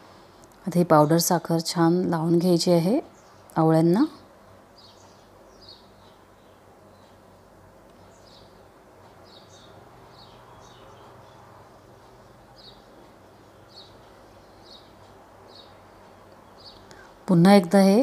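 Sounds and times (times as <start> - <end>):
faint steady hum: 0.0 - 18.0
small bird chirping: 4.7 - 7.3, 8.0 - 17.1.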